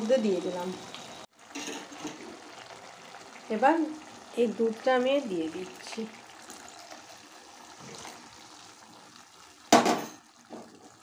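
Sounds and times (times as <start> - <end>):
milk pouring into pan: 5.8 - 9.8.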